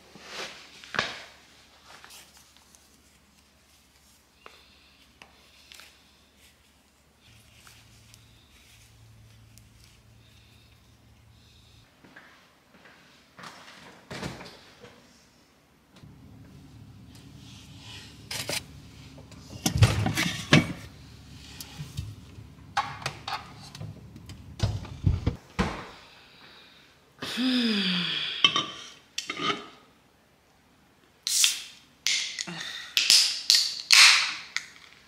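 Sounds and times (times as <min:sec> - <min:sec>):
refrigerator hum: 0:16.0 - 0:25.4.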